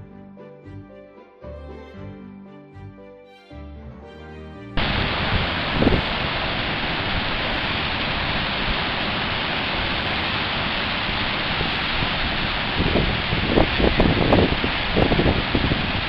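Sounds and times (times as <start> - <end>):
surf breaking on rocks: 4.8 - 16.0.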